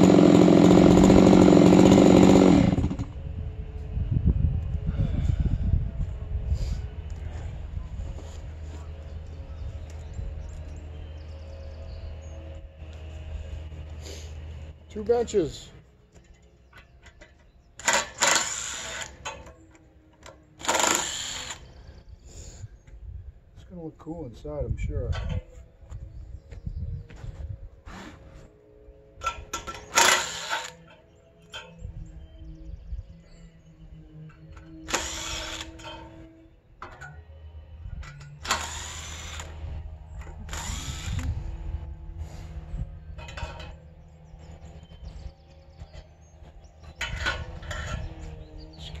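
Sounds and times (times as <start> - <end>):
cordless drill driving screws: 17.8 - 19.3, 20.6 - 21.7, 29.7 - 30.8, 34.9 - 35.9, 38.4 - 39.6, 40.4 - 41.3.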